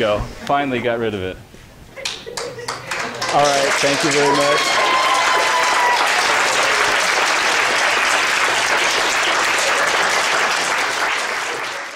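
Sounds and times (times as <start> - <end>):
students applauding: 2.4 - 11.9.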